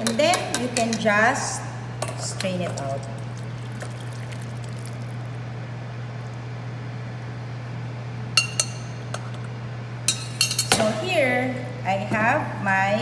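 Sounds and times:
constant low hum: 0:00.0 - 0:13.0
liquid splashing through strainer: 0:02.8 - 0:05.4.

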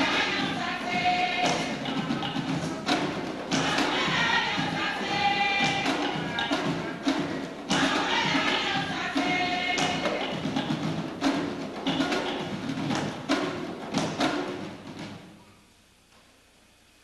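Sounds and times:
group singing: 0:00.0 - 0:13.2
hand drums beating: 0:00.0 - 0:15.3.

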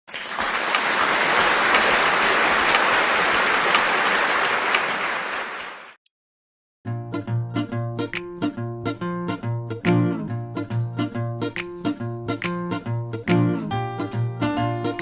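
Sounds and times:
clock ticking: 0:00.1 - 0:06.1.

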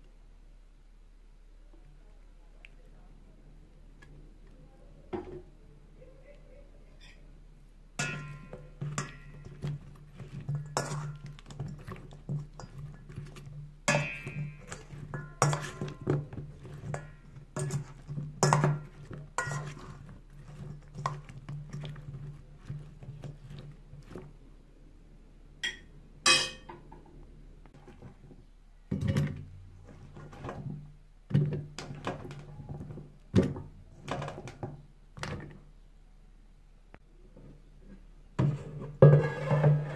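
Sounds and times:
metal spoon clinking in bowl: 0:08.0 - 0:09.6, 0:13.9 - 0:19.9.

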